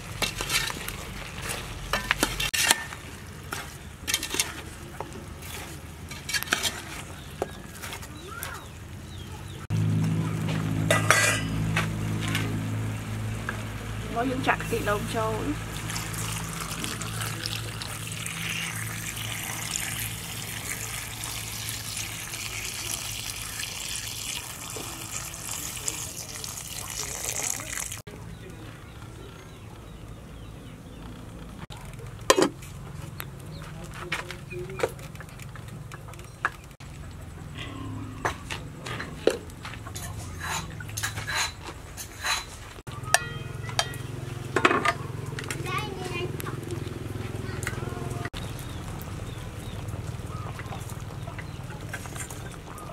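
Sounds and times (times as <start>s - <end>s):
pot lid clinking on pot: 10.9s - 11.5s
water pouring into a pot: 15.6s - 28.1s.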